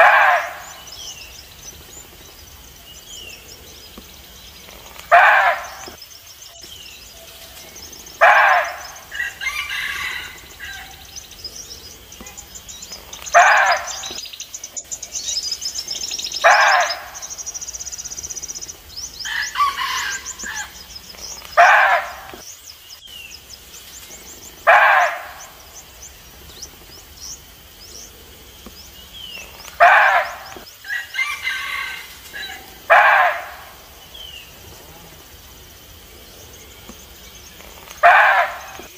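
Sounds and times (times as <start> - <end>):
deer barking: 0.0 - 0.8, 5.1 - 6.0, 8.2 - 9.0, 13.3 - 14.2, 16.4 - 17.2, 21.6 - 22.4, 24.6 - 25.5, 29.8 - 30.6, 32.4 - 33.8, 38.0 - 38.9
small birds chirping: 0.0 - 38.9.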